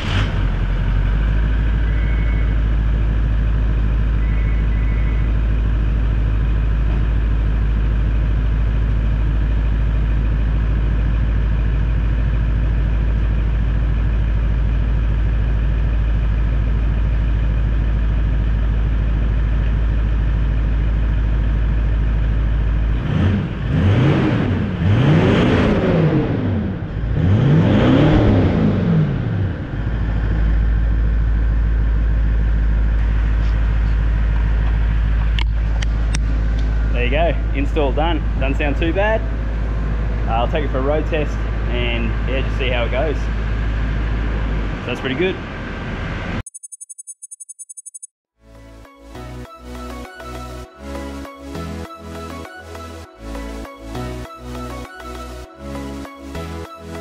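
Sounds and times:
engine revving: 0.0 - 2.7, 22.8 - 31.0
diesel engine idling: 0.0 - 23.7, 28.6 - 46.4.

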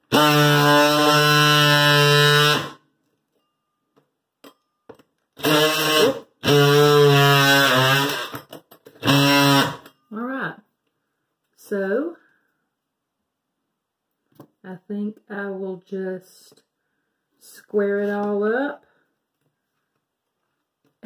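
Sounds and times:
oscillating multi-tool buzzing: 0.1 - 2.8, 5.4 - 8.4, 9.0 - 9.9.

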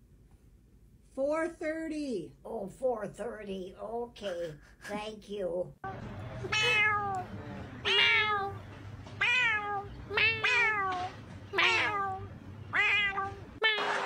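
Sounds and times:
cat meowing: 6.4 - 8.6, 9.2 - 14.0.

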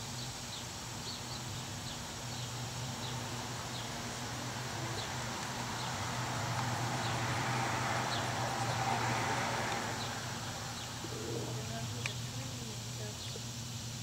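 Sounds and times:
vehicle passing by: 2.2 - 12.6.

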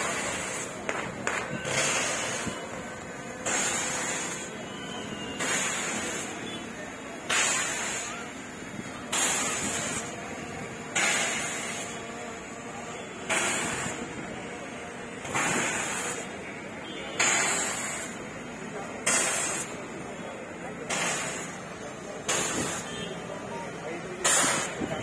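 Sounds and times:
crowd chatter: 0.0 - 25.0
confetti cannon blasts: 7.2 - 8.3.

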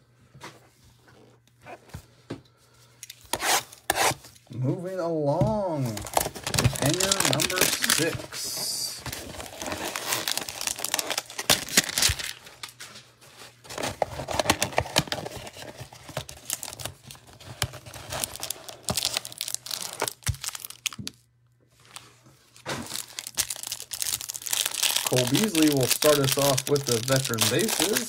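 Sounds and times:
plastic wrapping crinkling: 5.9 - 28.0
cardboard box tearing: 6.0 - 8.2, 9.1 - 12.3.

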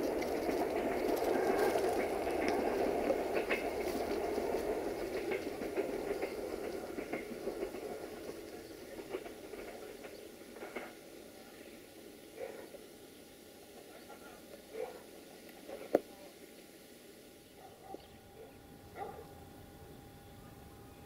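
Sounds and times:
train wheels clicking over rail joints: 0.0 - 11.5
train rumble: 0.0 - 21.0.

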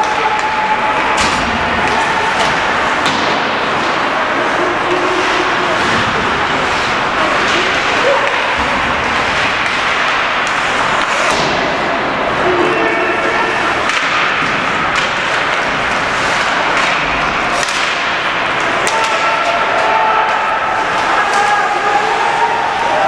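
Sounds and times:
puck hitting boards: 0.0 - 21.5
crowd noise: 0.0 - 23.0
skates on ice: 0.0 - 23.0
sticks cracking on puck: 13.8 - 19.8.

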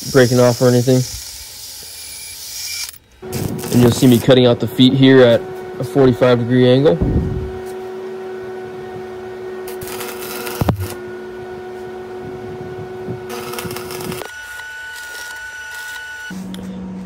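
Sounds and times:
hissing crackle: 3.2 - 4.3, 9.7 - 11.0, 13.3 - 14.3.

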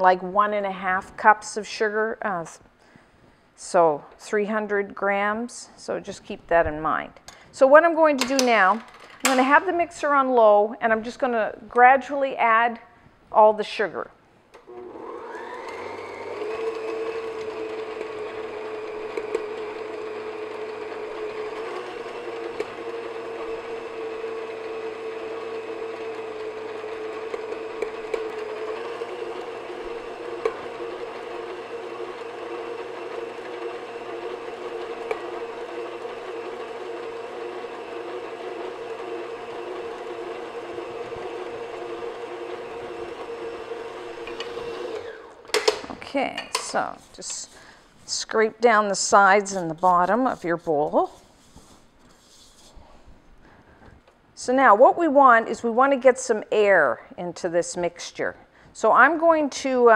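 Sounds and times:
stand mixer motor whine: 14.7 - 45.8.

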